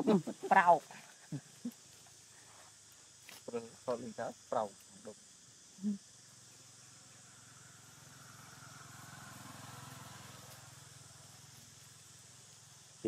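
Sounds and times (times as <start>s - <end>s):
passing vehicle engine hum: 6.9s - 13.0s.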